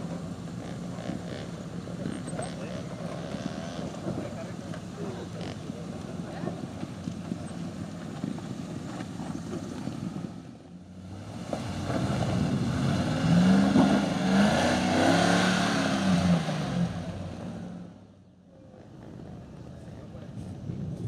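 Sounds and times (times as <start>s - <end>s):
car engine revving under load: 11.0s - 18.2s.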